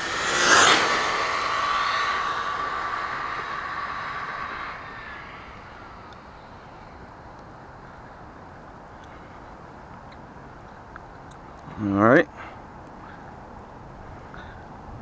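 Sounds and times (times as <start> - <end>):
toy truck high whine passing: 0.0 - 6.6.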